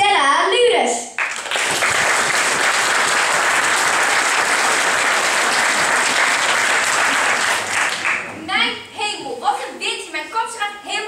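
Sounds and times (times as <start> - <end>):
audience applauding: 1.2 - 8.3.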